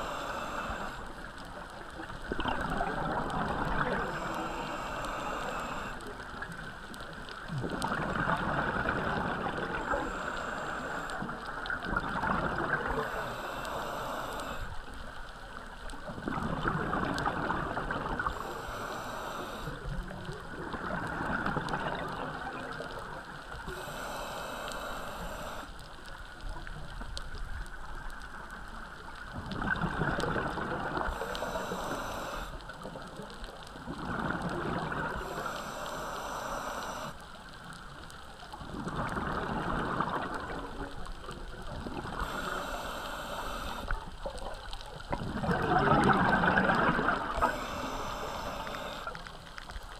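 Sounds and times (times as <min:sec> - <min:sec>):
hissing regulator inhale: 0:00.0 - 0:01.5, 0:03.0 - 0:06.3, 0:09.1 - 0:11.7, 0:12.7 - 0:15.0, 0:18.2 - 0:20.2, 0:23.6 - 0:25.8, 0:31.0 - 0:32.8, 0:34.3 - 0:37.4, 0:42.0 - 0:44.1, 0:46.0 - 0:49.5
gurgling exhaled bubbles: 0:01.9 - 0:06.8, 0:07.4 - 0:14.6, 0:16.1 - 0:23.9, 0:29.3 - 0:32.9, 0:33.8 - 0:36.1, 0:38.6 - 0:49.4.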